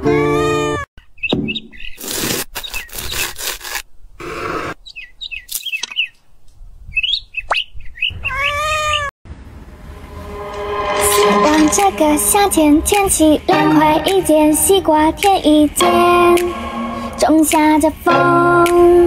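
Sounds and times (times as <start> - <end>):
high chirping sound effects: 15.8 - 18.0.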